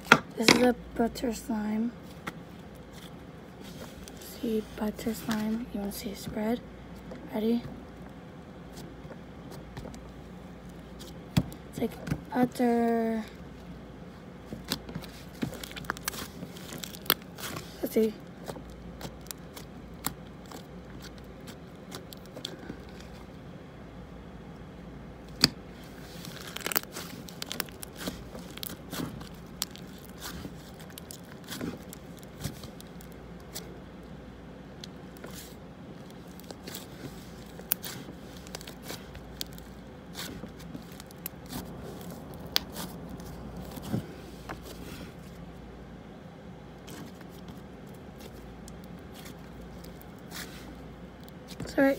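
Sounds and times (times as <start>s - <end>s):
slime sticky clicks and crackles: 18.6s - 22.5s, 26.2s - 33.7s, 34.8s - 43.8s.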